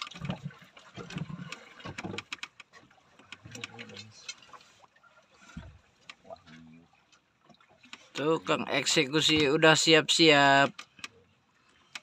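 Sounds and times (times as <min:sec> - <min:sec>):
knocks and clicks on wooden boat: 0:00.0 - 0:04.6, 0:09.2 - 0:09.8, 0:10.5 - 0:11.2, 0:11.8 - 0:12.0.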